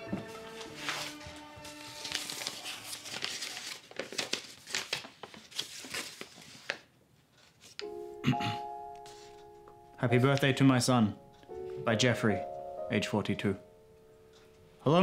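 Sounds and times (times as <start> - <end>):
crinkling and crackling: 0.6 - 7.9.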